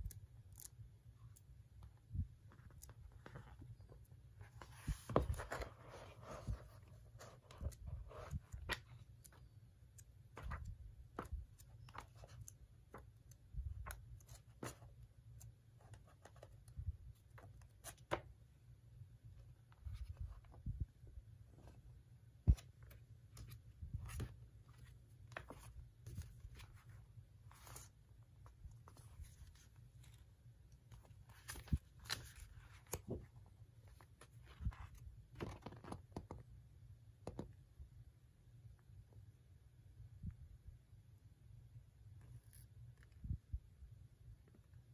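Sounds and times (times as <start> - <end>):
magazine pages turning: 4.5 - 9.4, 22.5 - 28.0, 30.9 - 33.2.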